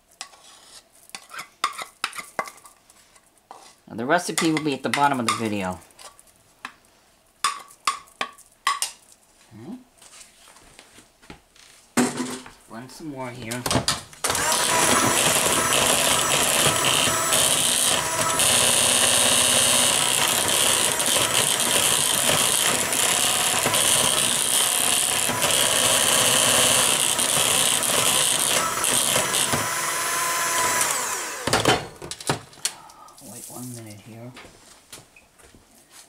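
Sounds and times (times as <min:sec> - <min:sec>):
electric hand mixer whirring: 0:14.2 - 0:32.1.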